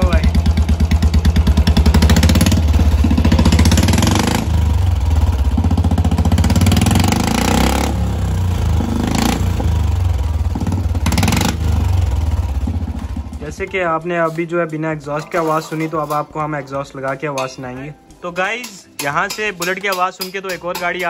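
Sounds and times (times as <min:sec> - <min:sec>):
loud motorcycle engine running: 0:00.0 - 0:13.7.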